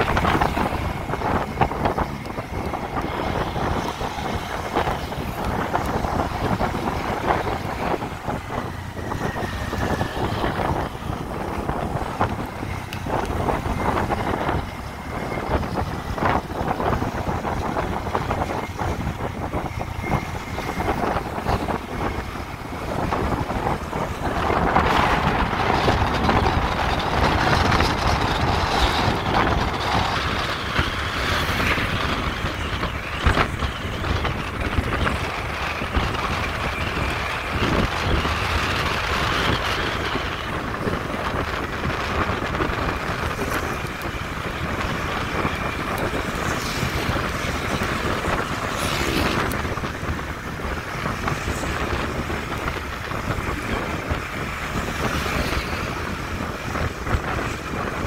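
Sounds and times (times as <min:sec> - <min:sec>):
wind noise on microphone: 0:00.0 - 0:58.0.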